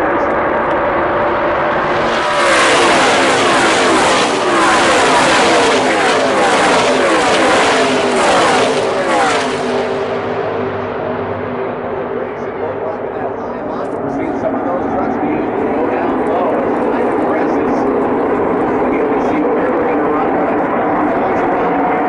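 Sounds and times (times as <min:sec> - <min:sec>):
racing trucks passing by: 0:00.0 - 0:11.6.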